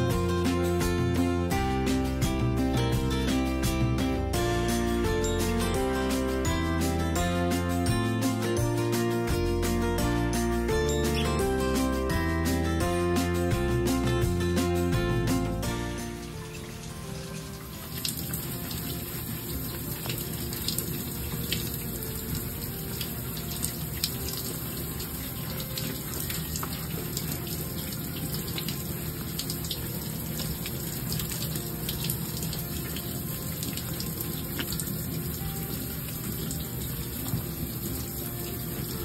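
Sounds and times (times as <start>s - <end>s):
water drips: 15.4s - 39.0s.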